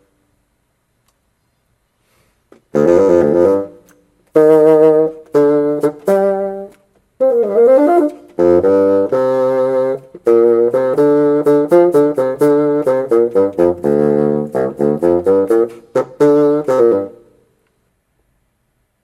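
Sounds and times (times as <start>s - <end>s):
solo bassoon: 2.7s - 17.5s.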